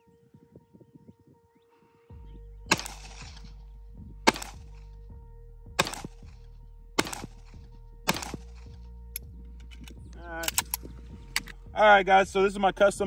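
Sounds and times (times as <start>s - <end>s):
background music: 0.0s - 13.0s
pistol shots: 2.7s - 3.5s, 4.3s - 4.8s, 5.8s - 6.3s, 7.0s - 8.7s.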